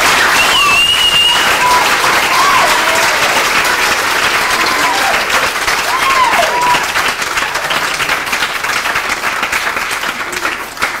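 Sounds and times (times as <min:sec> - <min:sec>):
audience applauding: 0:00.0 - 0:11.0
short cheer: 0:00.1 - 0:03.6, 0:04.2 - 0:07.0.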